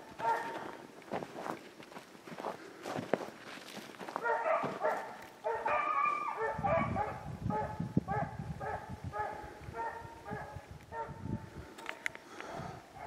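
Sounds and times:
beagles baying: 0:00.0 - 0:00.8, 0:04.2 - 0:11.2
footsteps in snow: 0:00.0 - 0:06.2.

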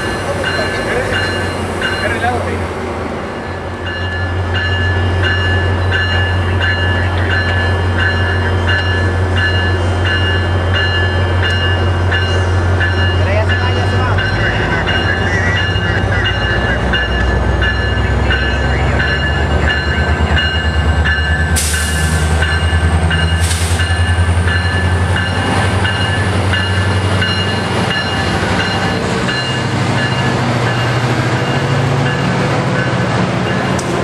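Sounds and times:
locomotive bell ringing: 0:00.0 - 0:02.6, 0:03.3 - 0:33.9
diesel locomotive engine drone: 0:00.0 - 0:34.0.

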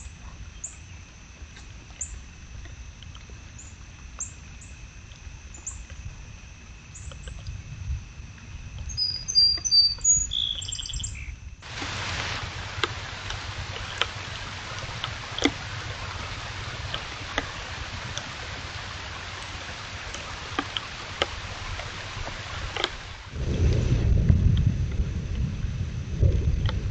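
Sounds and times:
small birds chirping: 0:08.8 - 0:11.8
steady hiss: 0:10.6 - 0:26.9
sharp ticks: 0:19.4 - 0:23.0.

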